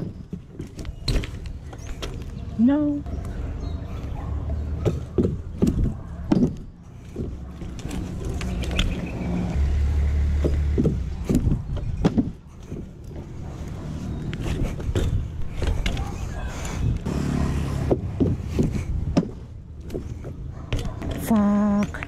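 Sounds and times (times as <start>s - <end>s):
bike knocks and clanks: 0.0s - 2.4s, 4.7s - 9.0s, 10.2s - 13.4s, 14.4s - 16.3s, 17.7s - 22.0s.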